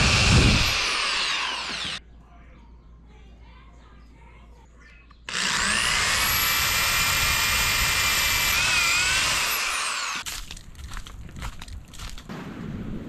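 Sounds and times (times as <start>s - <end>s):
electric drill boring into wood: 0.0s - 2.0s, 5.3s - 10.3s.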